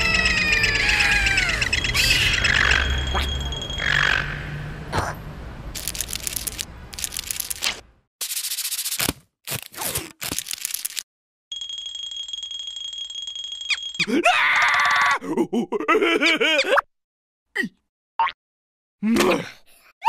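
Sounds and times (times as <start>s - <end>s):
cartoon character squealing: 0.0s - 2.8s, 14.0s - 15.2s
high-pitched alarm tone: 0.0s - 4.0s
cartoon crackling bursts: 5.8s - 11.0s.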